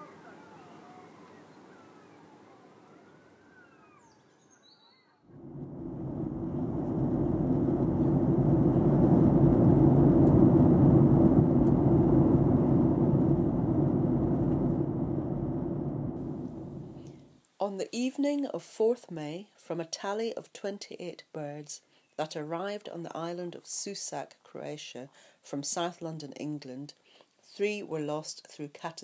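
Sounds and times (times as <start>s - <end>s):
bird chirps: 2.9s - 5.3s
jet airliner engine rush: 5.3s - 17.2s.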